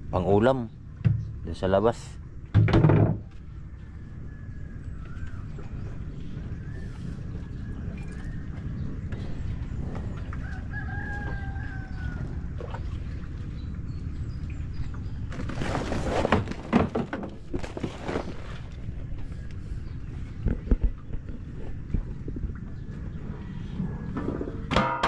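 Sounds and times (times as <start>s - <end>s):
rustling and knocks: 2.5s - 3.4s, 15.4s - 18.8s
steady low rumble: 3.2s - 15.5s, 17.3s - 24.7s
rooster crowing: 10.4s - 12.5s.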